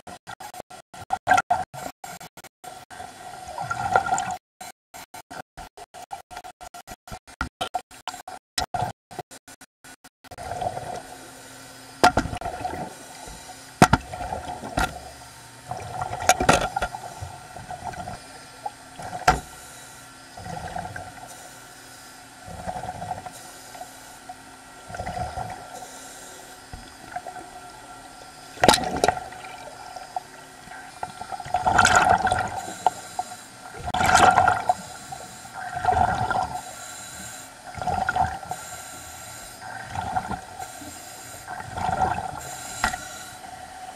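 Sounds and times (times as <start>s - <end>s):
hissing regulator inhale: 12.8s - 13.8s, 16.7s - 17.6s, 19.4s - 27.4s, 32.4s - 33.8s, 34.6s - 37.7s, 38.4s - 43.9s
exhaust bubbles rushing: 28.6s - 29.7s, 31.2s - 32.6s, 33.8s - 34.8s, 35.6s - 36.6s, 37.7s - 38.4s, 39.6s - 40.5s, 41.5s - 42.4s.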